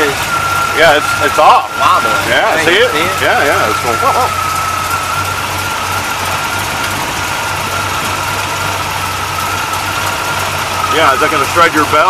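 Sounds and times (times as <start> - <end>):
car engine idling: 0.0 - 12.0
high whine: 0.0 - 12.0.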